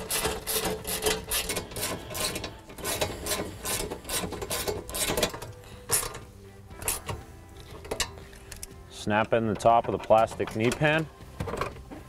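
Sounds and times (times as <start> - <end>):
hand ratchet clicking: 0.0 - 6.2, 6.8 - 8.7.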